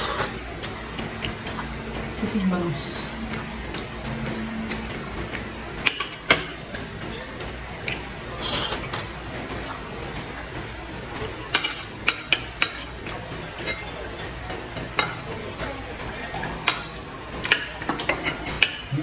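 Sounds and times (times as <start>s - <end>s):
slurping noodles: 0.0s - 0.4s, 8.4s - 9.0s
cutlery clicking on plates: 11.4s - 18.9s.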